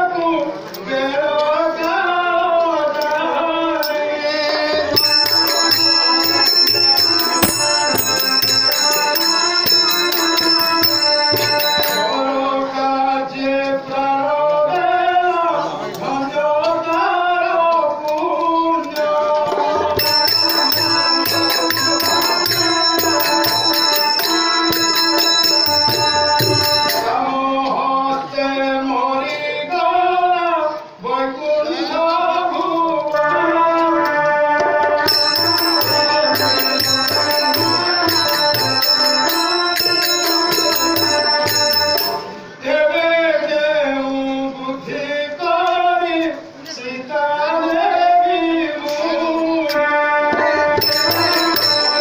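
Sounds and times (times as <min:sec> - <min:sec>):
person singing: 0:00.0 - 0:52.0
held instrumental drone: 0:03.8 - 0:12.6, 0:20.0 - 0:27.2, 0:34.0 - 0:42.6
jingling hand percussion: 0:03.8 - 0:12.8, 0:18.9 - 0:27.4, 0:34.1 - 0:42.6, 0:50.3 - 0:52.0.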